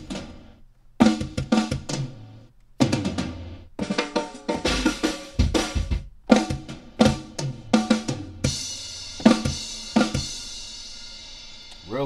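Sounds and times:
kick and snare drum fills: 0:01.0 - 0:10.6.

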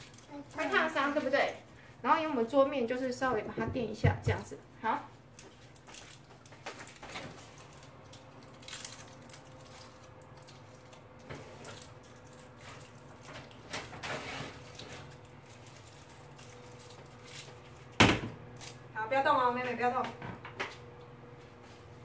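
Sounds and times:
small objects clicking and rustling: 0:00.0 - 0:01.5, 0:05.3 - 0:14.0, 0:14.6 - 0:17.8.

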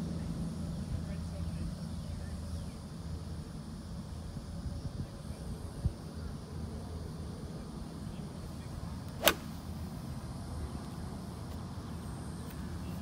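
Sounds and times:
golf club striking ball: 0:09.2 - 0:09.6.

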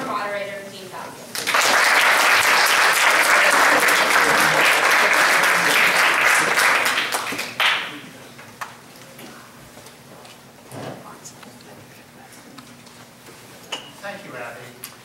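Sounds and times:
audience applauding: 0:01.3 - 0:08.0.

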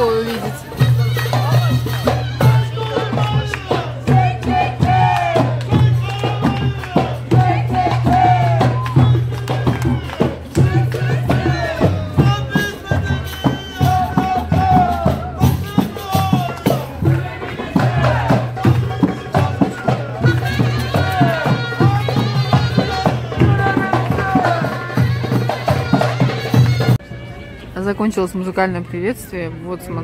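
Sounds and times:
quick steady percussion: 0:00.0 - 0:27.0.

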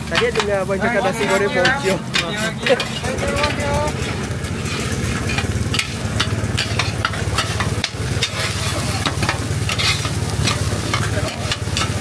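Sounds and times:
metal spatulas scraping on griddle: 0:00.1 - 0:12.0.

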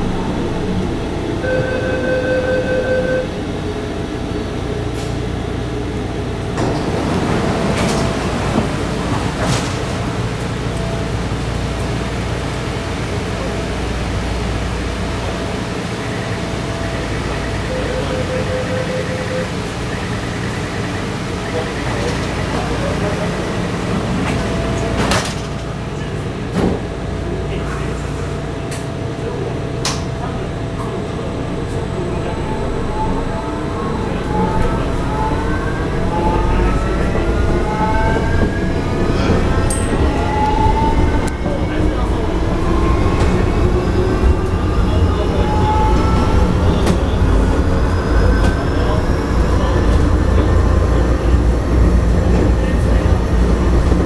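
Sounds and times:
train cabin hum and rumble: 0:00.0 - 0:54.0
sliding doors closing: 0:06.5 - 0:11.3.

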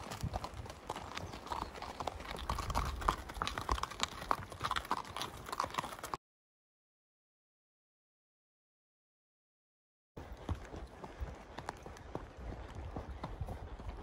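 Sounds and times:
horse hooves on gravel: 0:00.0 - 0:06.2, 0:10.2 - 0:14.0.

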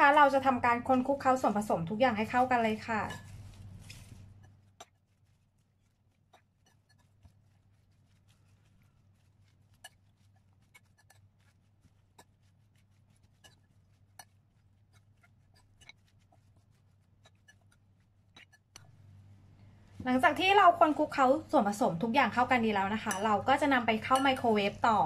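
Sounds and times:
metal fork scraping a bowl: 0:02.1 - 0:19.0, 0:22.8 - 0:24.8.

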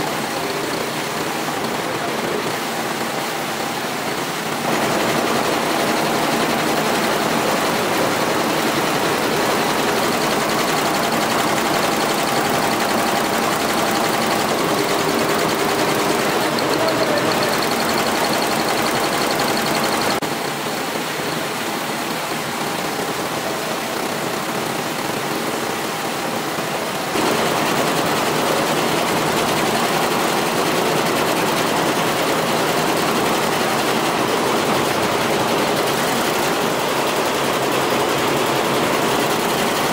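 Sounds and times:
embroidery machine needles clattering: 0:04.7 - 0:20.2.

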